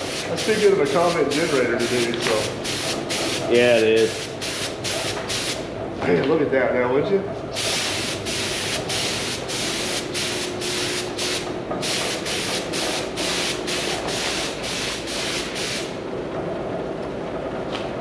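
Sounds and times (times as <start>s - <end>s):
spray gun hissing bursts: 0.0s - 5.6s, 7.6s - 16.0s.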